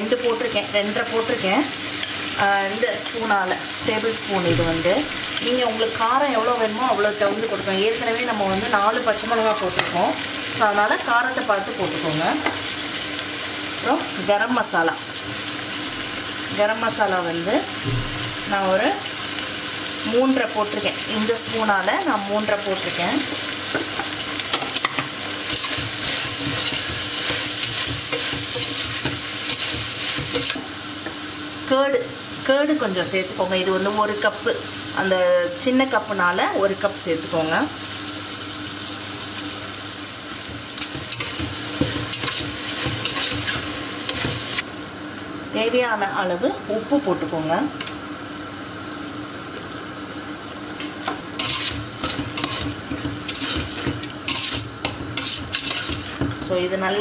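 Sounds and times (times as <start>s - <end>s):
masala sizzling in oil: 0.0s - 57.0s
utensil scraping against pot: 24.5s - 30.7s, 40.8s - 44.6s, 50.8s - 56.4s.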